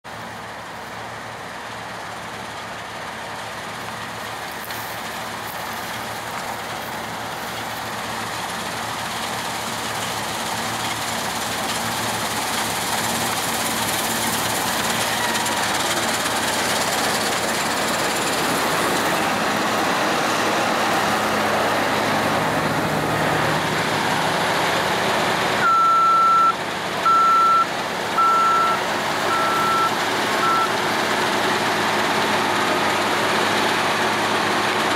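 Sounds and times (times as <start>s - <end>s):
combine harvester running: 0.1s - 34.9s
high electronic beeper: 25.6s - 30.7s.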